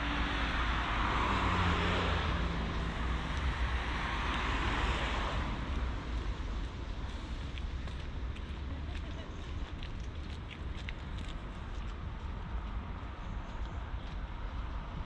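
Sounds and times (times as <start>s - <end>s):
vehicle passing close by: 0.0s - 6.1s
low traffic rumble: 0.0s - 15.0s.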